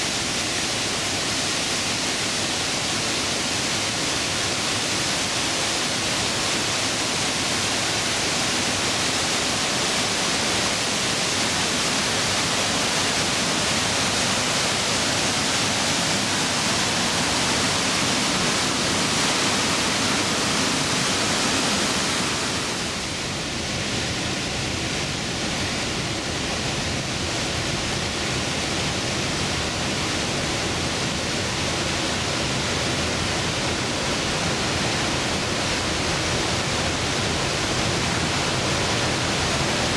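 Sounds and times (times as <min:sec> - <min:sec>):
waterfall rushing: 0:00.0 - 0:39.9.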